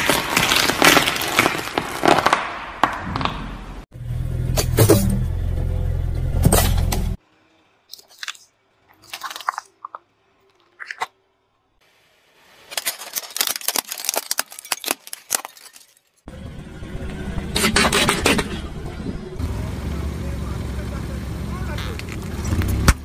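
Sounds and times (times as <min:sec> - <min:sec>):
plastic toy crunching and cracking: 0:00.0 - 0:02.9, 0:07.9 - 0:11.1, 0:12.6 - 0:16.2
squeeze tube popping and squelching: 0:07.9 - 0:10.0
metal filter cracking under tyre: 0:12.7 - 0:16.3
car engine hum: 0:16.3 - 0:23.0.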